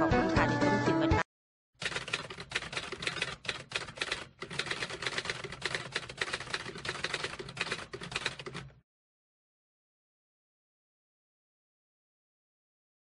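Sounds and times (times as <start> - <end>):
typewriter clacking: 1.8 - 8.8.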